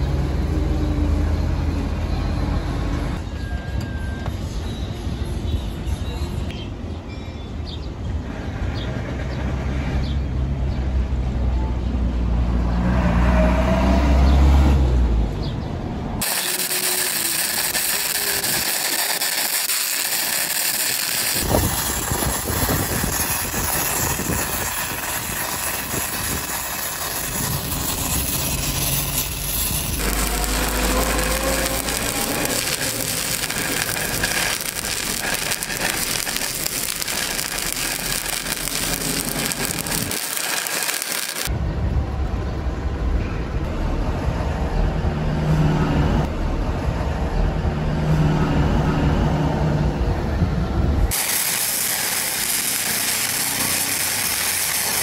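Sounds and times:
welding arc crackling: 16.2 - 41.5, 51.1 - 55.0.

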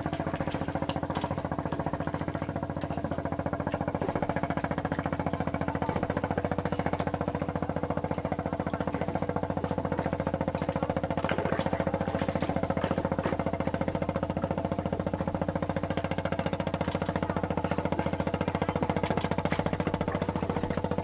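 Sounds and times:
boat engine idling: 0.0 - 21.0.

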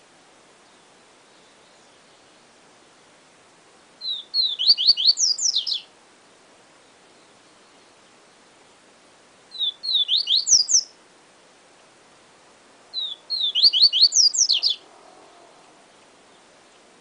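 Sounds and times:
bird whistling song: 4.0 - 5.9, 9.5 - 11.0, 12.9 - 14.8.

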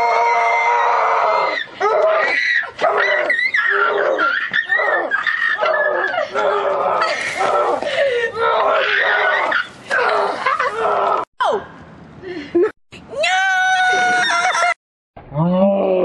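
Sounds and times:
boy screaming: 13.1 - 14.7.

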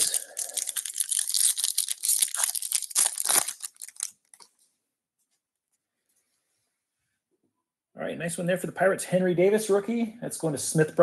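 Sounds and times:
foil wrapper tearing and crinkling: 0.0 - 4.5.

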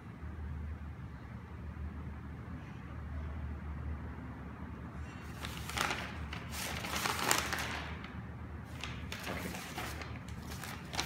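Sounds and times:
paper rustling: 5.2 - 11.0.

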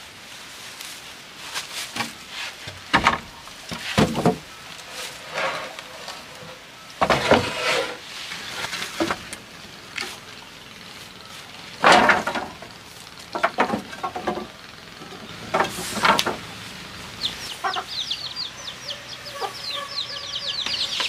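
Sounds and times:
wooden planks knocking: 2.7 - 4.5, 11.8 - 14.6, 15.4 - 16.5.

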